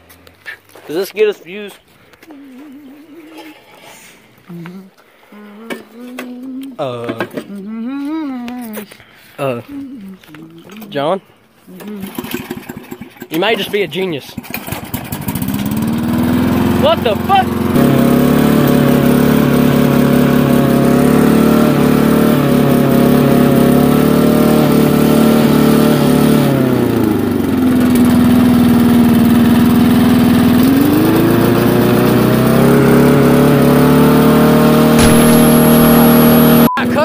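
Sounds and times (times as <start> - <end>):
lawn mower engine running: 11.8 - 37.0.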